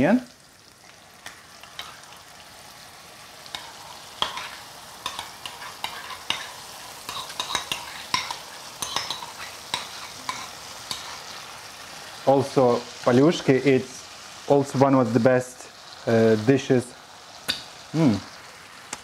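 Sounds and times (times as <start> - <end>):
bacon and onion sizzling in pan: 0.0 - 19.0
metal spoon scraping and clicking: 3.5 - 11.2.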